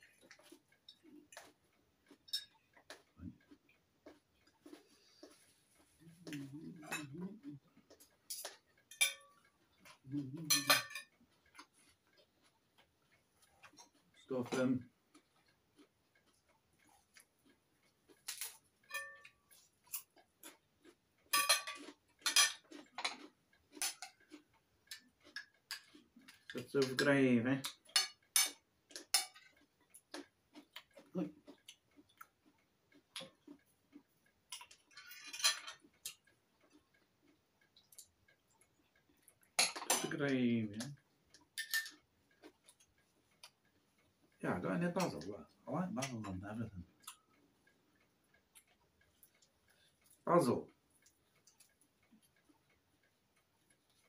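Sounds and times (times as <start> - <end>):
cutlery clinking on china plate: 2.2 - 2.6, 6.8 - 7.2, 8.3 - 11.7, 18.2 - 20.1, 21.3 - 24.3, 24.9 - 29.6, 34.5 - 35.8, 39.5 - 40.2, 41.5 - 42.0.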